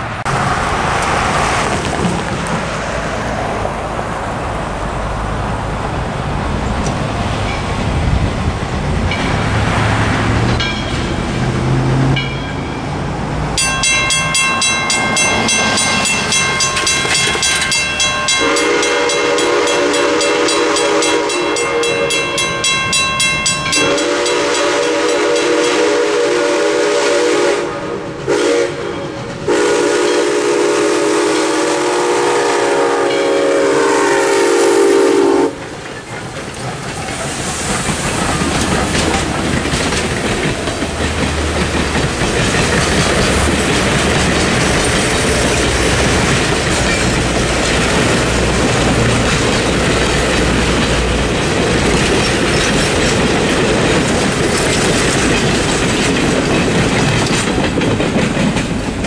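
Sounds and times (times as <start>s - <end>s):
steam locomotive rolling: 0.0s - 59.0s
crossing bell ringing: 7.4s - 7.9s, 9.1s - 9.9s, 10.6s - 11.4s, 12.1s - 26.0s, 33.0s - 33.6s, 42.7s - 48.6s
steam whistle: 18.4s - 22.3s, 23.8s - 35.6s.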